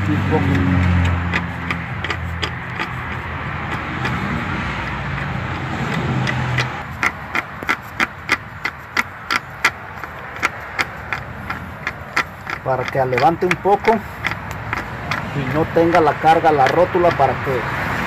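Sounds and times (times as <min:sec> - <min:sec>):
bottle jack pumping clicks: 0:00.0 - 0:17.7.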